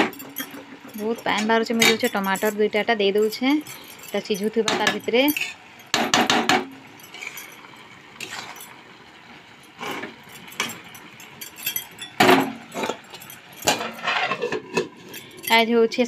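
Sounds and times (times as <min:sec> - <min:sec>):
metal spatula scraping a pan: 0:04.8 - 0:06.4, 0:07.1 - 0:08.7, 0:09.7 - 0:10.6, 0:13.6 - 0:15.4.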